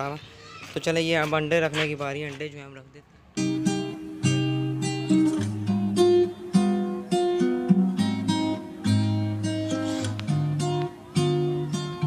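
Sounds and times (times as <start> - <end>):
acoustic guitar plucked chords: 3.4 - 12.0.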